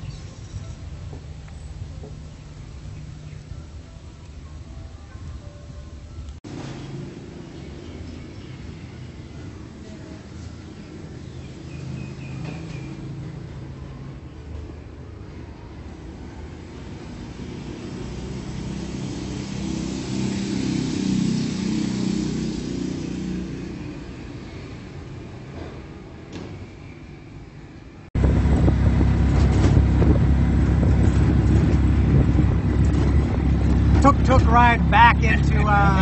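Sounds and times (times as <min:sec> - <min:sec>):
rumble inside moving tuk-tuk: 0:00.0 - 0:26.8, 0:27.5 - 0:36.0
vehicle passing by: 0:16.8 - 0:24.9, 0:28.2 - 0:36.0.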